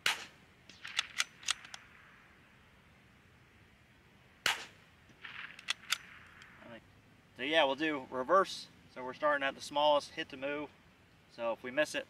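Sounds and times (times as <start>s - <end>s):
rifle shot: 0.0s - 2.3s, 4.4s - 6.7s
rifle bolt clicks: 0.7s - 1.9s, 5.4s - 6.5s.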